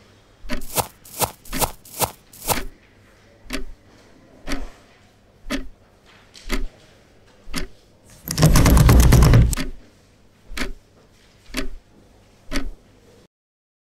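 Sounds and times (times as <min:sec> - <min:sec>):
door handle and lock rattling: 0:08.1 - 0:09.6.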